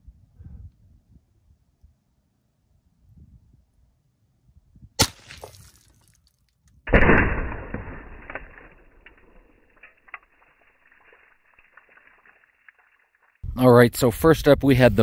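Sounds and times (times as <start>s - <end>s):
air pistol shot: 5.0s - 5.5s, 6.9s - 9.4s
water bottle bursting: 5.0s - 5.9s.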